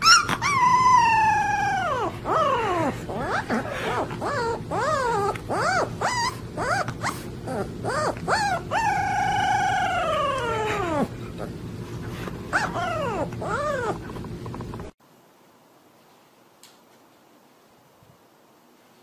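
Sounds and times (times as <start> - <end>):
puppy howling: 0.0 - 11.6, 12.5 - 14.2.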